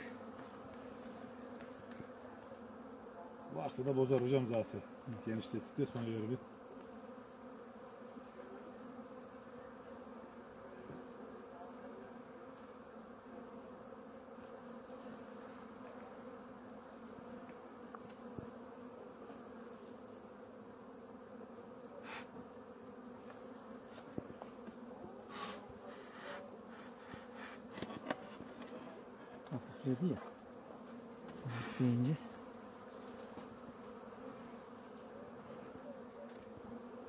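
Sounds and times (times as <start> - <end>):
honeybees buzzing: 0.0 - 37.0.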